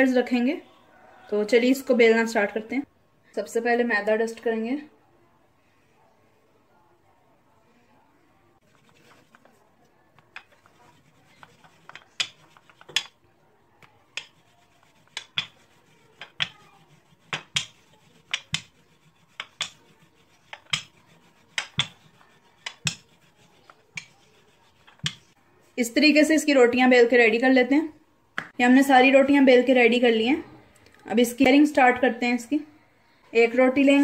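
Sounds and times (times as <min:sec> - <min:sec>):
hands pressing dough: 0:08.6 - 0:25.4
rolling pin rolling dough: 0:08.6 - 0:25.4
rolling pin clacking on counter: 0:10.2 - 0:13.2, 0:14.1 - 0:25.3.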